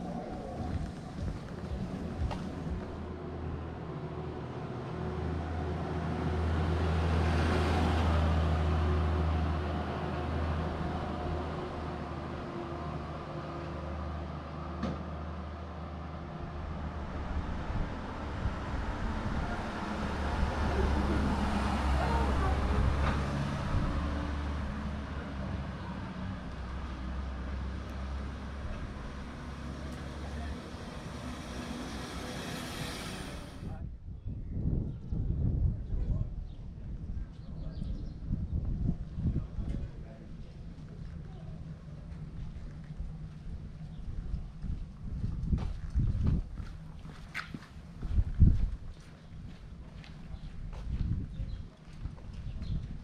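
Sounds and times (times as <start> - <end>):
truck driving past: 0.0 - 33.8.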